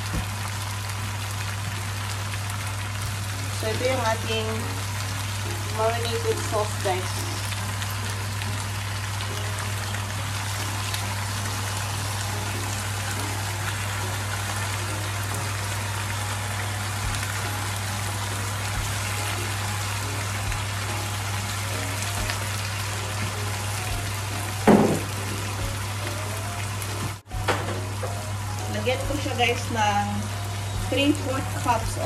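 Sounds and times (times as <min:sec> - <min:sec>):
food sizzling in a pan: 0:00.0 - 0:32.0
knock: 0:24.7 - 0:25.1.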